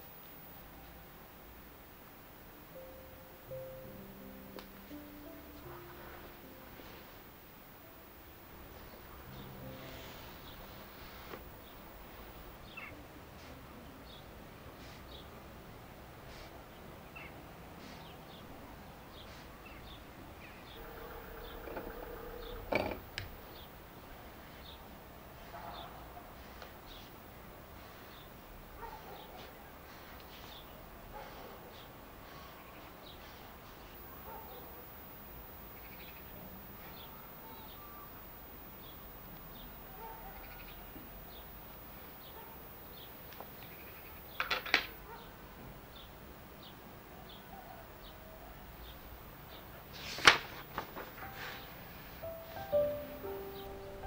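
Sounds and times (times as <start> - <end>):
steady hum: 0.0 - 16.6
faint bird chirps: 12.6 - 13.0, 17.1 - 22.7, 35.7 - 41.5
stuttering animal call: 20.8 - 23.0.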